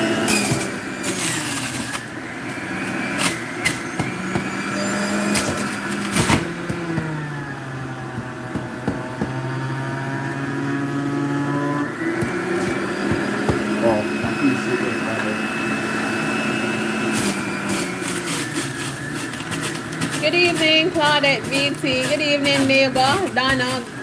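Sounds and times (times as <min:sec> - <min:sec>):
juicer motor whining: 0:00.0 - 0:24.0.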